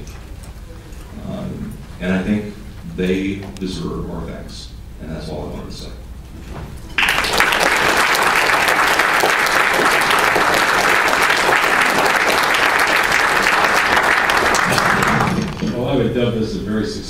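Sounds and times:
audience applauding: 7.0s - 15.7s.

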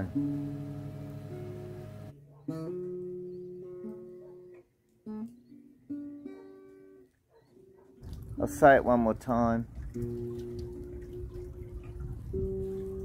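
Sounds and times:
acoustic guitar chords strummed: 0.0s - 7.0s.

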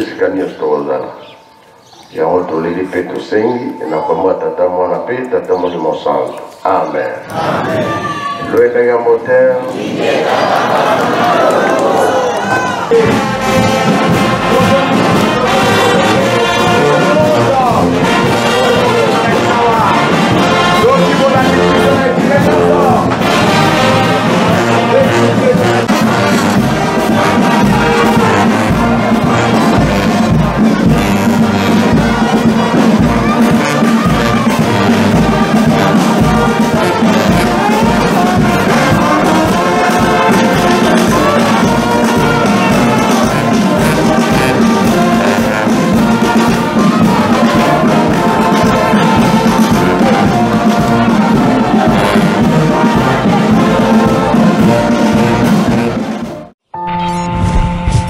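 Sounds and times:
brass band playing: 7.3s - 58.0s
steady low beat: 13.0s - 54.3s, 56.8s - 58.0s.

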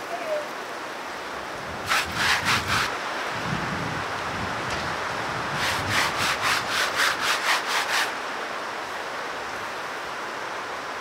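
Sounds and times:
hand brushing sawdust off wood: 1.9s - 2.9s, 5.6s - 8.2s.

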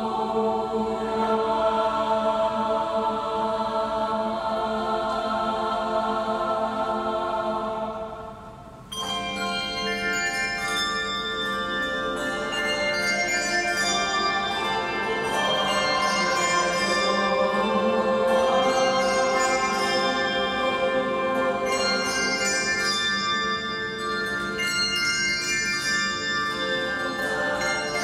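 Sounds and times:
choir singing held chord: 0.0s - 25.0s, 26.5s - 28.0s
handbells and chimes ringing: 8.9s - 28.0s.

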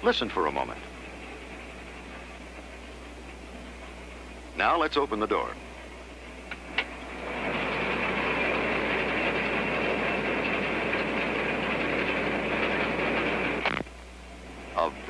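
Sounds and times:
combine harvester mechanical din: 6.7s - 13.8s.

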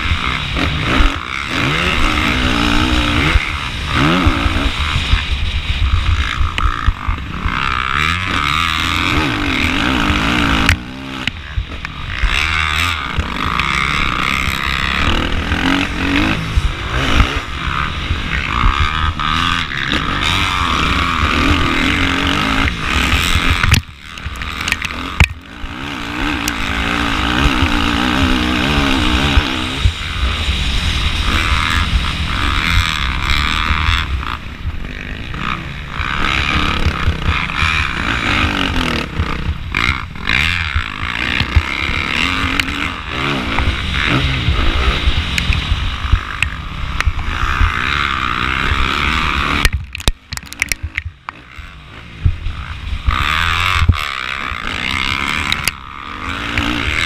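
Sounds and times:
motorcycle engine revving: 0.0s - 57.0s.

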